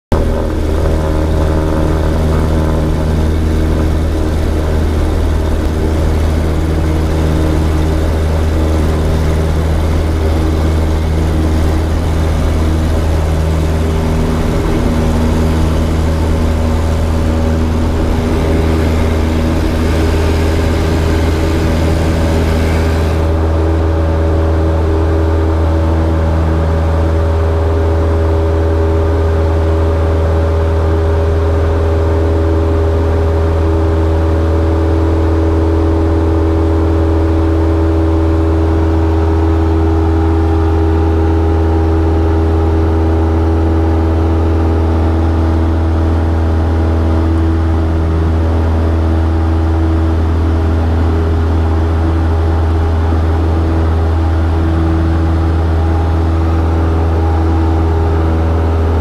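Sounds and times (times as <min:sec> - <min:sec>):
propeller plane engine drone: 0:00.0 - 0:59.0
rushing hiss of take-off roll: 0:12.0 - 0:23.6.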